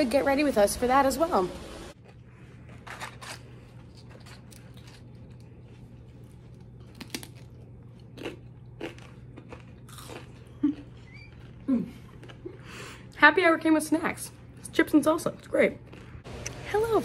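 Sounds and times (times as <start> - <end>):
chips crunching: 2.0 - 12.4.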